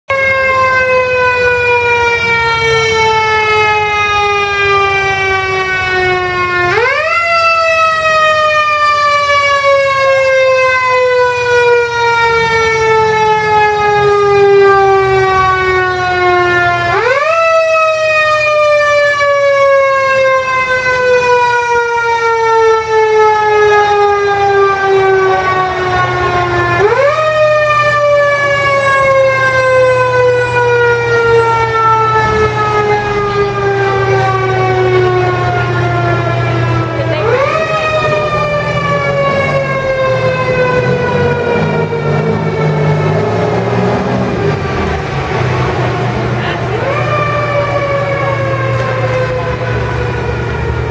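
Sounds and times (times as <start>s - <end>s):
fire engine siren wailing: 0.1s - 50.9s
low rumble of idling trucks: 25.1s - 50.9s.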